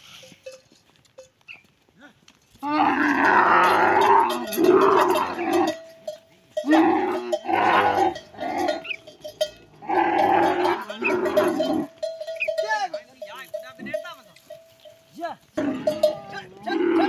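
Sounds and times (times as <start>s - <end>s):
camels calling loudly: 2.6s - 12.6s, 15.5s - 17.0s.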